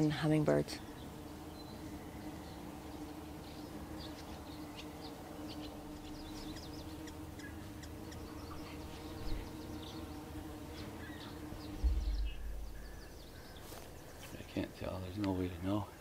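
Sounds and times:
bees buzzing: 0.0 - 16.0
small birds chirping: 0.0 - 16.0
low thumps: 11.6 - 14.2.

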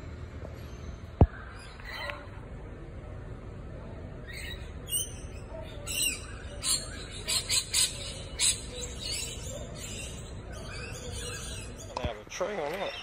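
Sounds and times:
low background rumble: 0.0 - 12.4
animal squeaks and chirps: 4.3 - 12.0.

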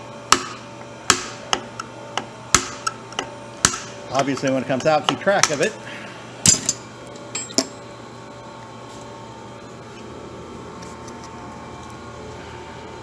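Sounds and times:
faint constant whine: 0.0 - 13.0
machines humming: 0.0 - 13.0.

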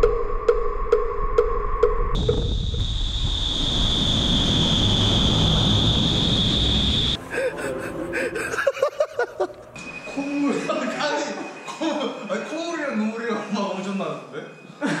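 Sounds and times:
wind tunnel airflow and fans: 1.8 - 8.6
person laughing: 7.2 - 9.6
person gasping and panting: 7.3 - 8.7.

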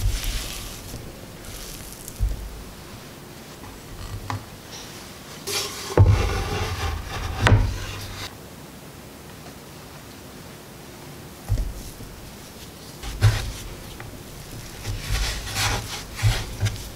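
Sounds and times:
rustling brushing of flour: 0.0 - 4.0, 4.6 - 8.3, 11.4 - 16.9
thud on wooden board: 6.0 - 8.1, 11.5 - 12.2.

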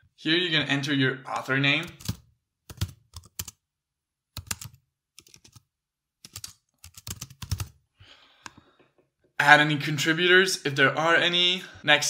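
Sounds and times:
computer keyboard typing: 1.4 - 3.6, 4.4 - 7.8.

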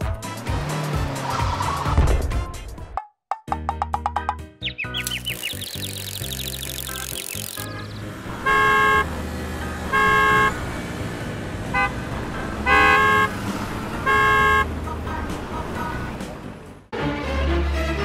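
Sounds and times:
car horn honking: 8.3 - 9.2, 9.8 - 10.7, 11.7 - 14.7.

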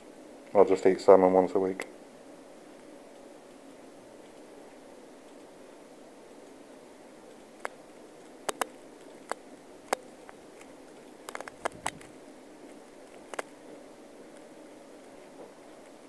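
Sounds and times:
faint room hum: 0.0 - 16.0
sharp irregular clicks: 7.3 - 13.6.

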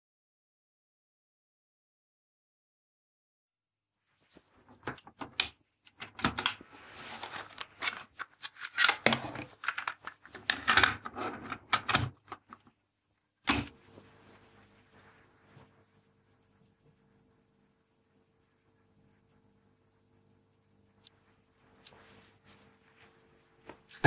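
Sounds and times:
faint steady hum: 4.2 - 24.0
cassette handling clicks and rattles: 4.8 - 6.6, 7.7 - 12.7, 13.4 - 13.7.

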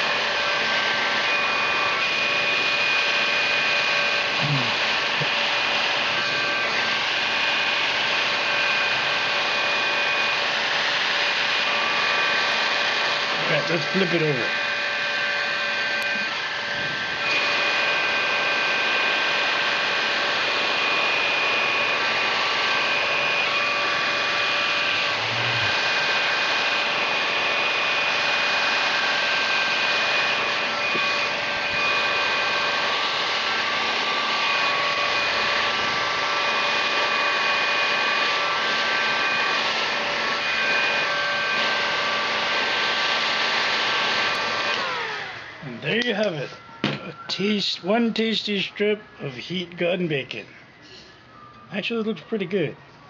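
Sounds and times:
heat gun blowing air: 0.0 - 45.5.

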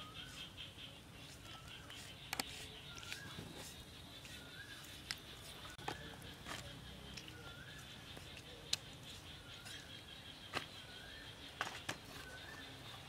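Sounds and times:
bird whistling: 0.0 - 2.0, 2.7 - 6.3.

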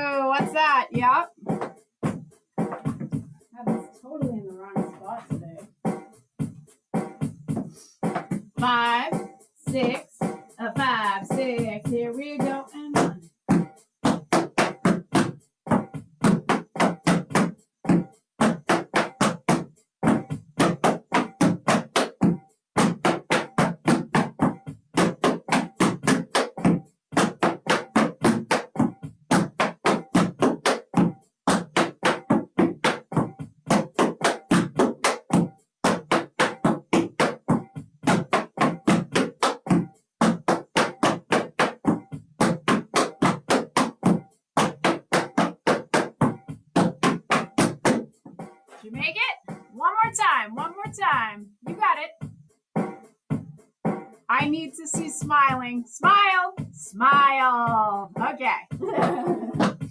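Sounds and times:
tap shoes on wooden board: 2.6 - 3.1, 42.4 - 46.1.

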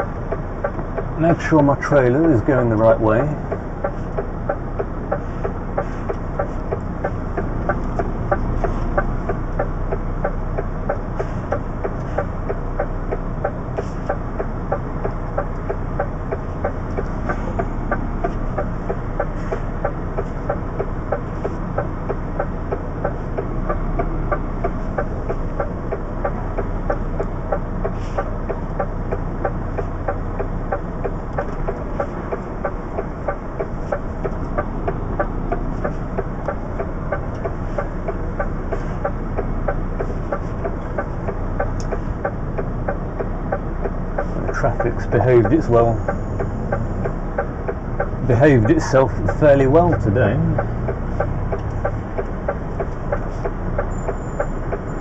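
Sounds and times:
steady ticking: 0.0 - 55.0
truck diesel engine running: 0.0 - 55.0.

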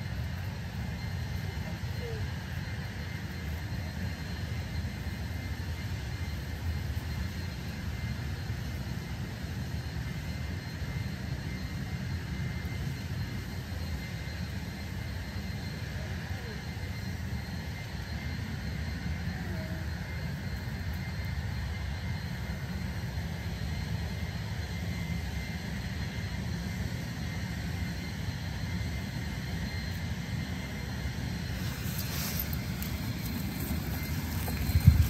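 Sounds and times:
low rumbling noise: 31.4 - 35.0
faint rustles and clicks: 31.5 - 35.0.

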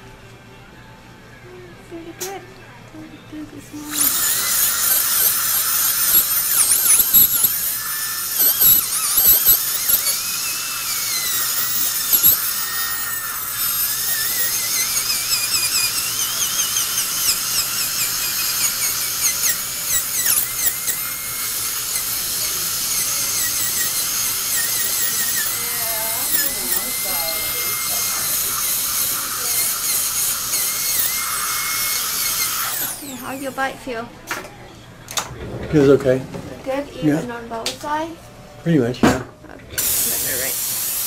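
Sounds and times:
dental drill whining: 3.8 - 33.8, 39.8 - 41.0.

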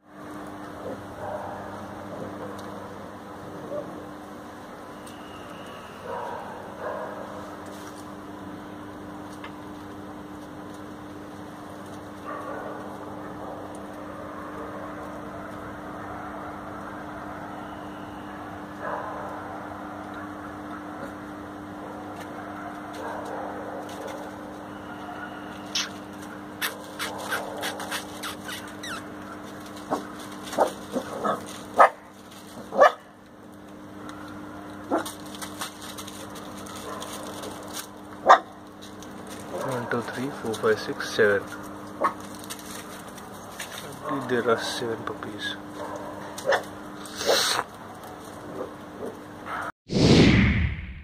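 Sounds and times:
puppy barking: 0.9 - 1.8, 6.0 - 7.4, 12.2 - 16.6, 18.8 - 21.1, 21.8 - 24.3, 26.6 - 33.2, 34.9 - 35.1, 38.2 - 38.6, 42.0 - 42.2, 45.7 - 47.6
puppies whining: 24.8 - 31.5.

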